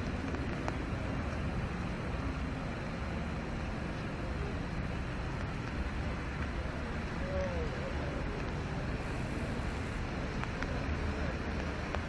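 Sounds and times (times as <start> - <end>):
low traffic rumble: 0.0 - 12.0
rain hissing on wet pavement: 0.0 - 12.0.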